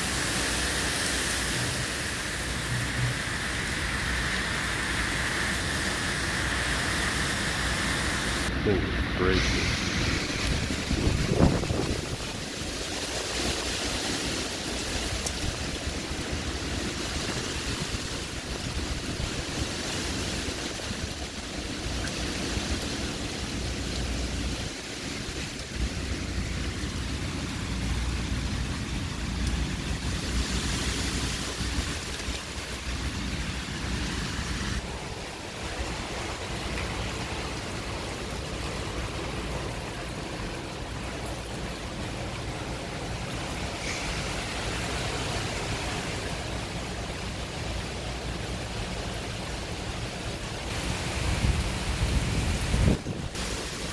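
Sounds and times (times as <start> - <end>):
heavy rain: 0.0 - 53.9
wind gusting: 1.0 - 37.2, 50.7 - 53.9.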